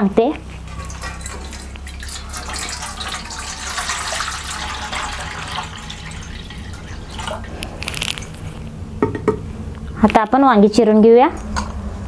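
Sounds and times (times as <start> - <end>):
water pouring into steel bowl: 0.6 - 8.5.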